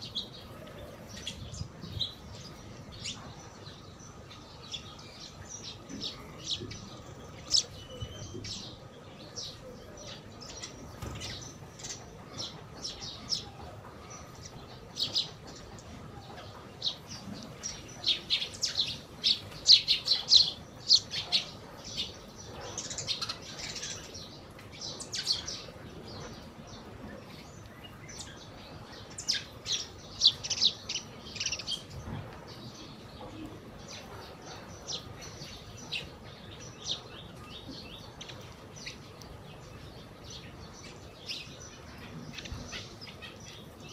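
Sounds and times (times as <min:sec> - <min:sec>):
sparrows chirping: 0:00.0 - 0:43.9.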